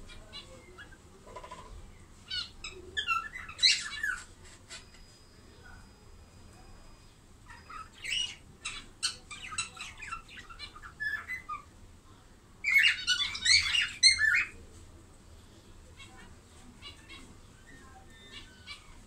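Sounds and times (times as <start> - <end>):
budgerigars chirping: 2.3 - 5.0, 7.4 - 11.7, 12.6 - 14.6.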